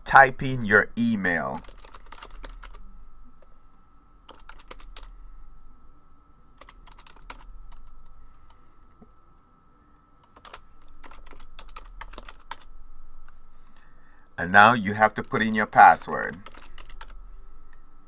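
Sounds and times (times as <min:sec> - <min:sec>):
faint steady hum: 0:00.0 - 0:18.0
typing on keyboard: 0:01.6 - 0:02.8, 0:04.3 - 0:05.1, 0:06.6 - 0:07.9, 0:10.2 - 0:12.7, 0:16.4 - 0:17.2.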